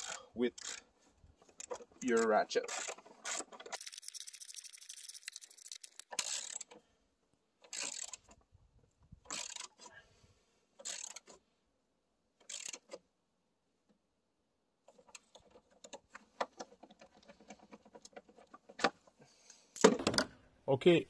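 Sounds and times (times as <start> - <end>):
ratchet wrench clicking: 0.0 - 0.8, 2.2 - 6.7, 7.7 - 8.2, 9.3 - 9.7, 10.8 - 11.3, 12.4 - 12.9.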